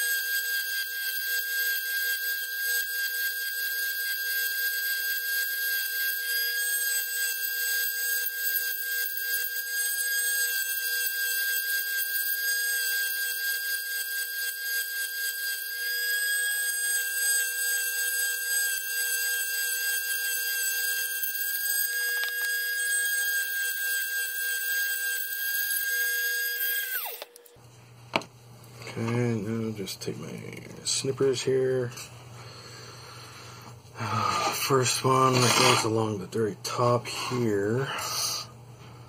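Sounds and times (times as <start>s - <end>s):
rotary tool grinding plastic: 0.0s - 27.6s, 34.2s - 36.1s.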